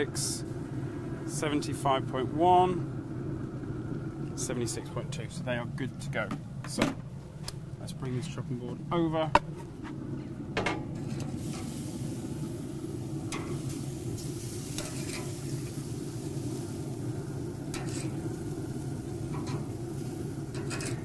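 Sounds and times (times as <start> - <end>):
steady low hum: 0.0 - 21.0
meat sizzling on grill: 11.0 - 21.0
tongs clicking against grate: 13.3 - 13.6, 19.3 - 19.7.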